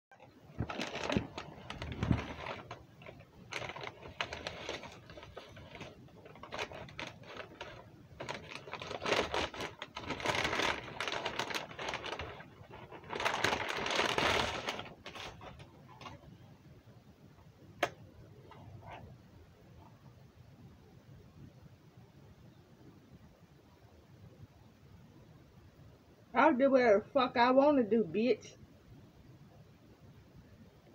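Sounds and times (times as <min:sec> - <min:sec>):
paper bag crinkling: 0:00.2 - 0:16.3.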